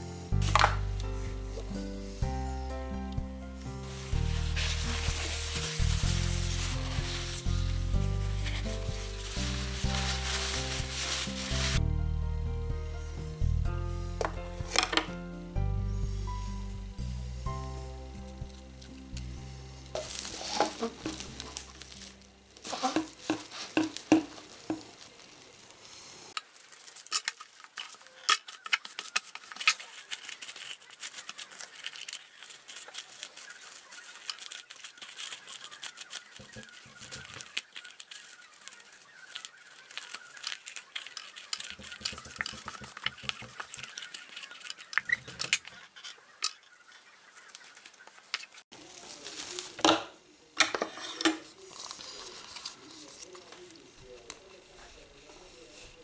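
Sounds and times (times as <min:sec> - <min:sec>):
background music: 0:00.0 - 0:23.9
plastic cling film crinkling: 0:03.6 - 0:11.9, 0:14.2 - 0:15.2, 0:18.1 - 0:56.0.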